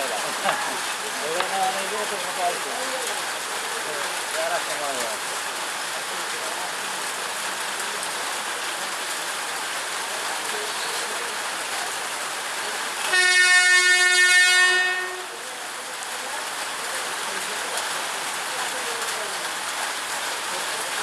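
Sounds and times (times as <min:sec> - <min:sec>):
rain hiss: 0:00.0 - 0:21.0
train horn: 0:13.1 - 0:15.4.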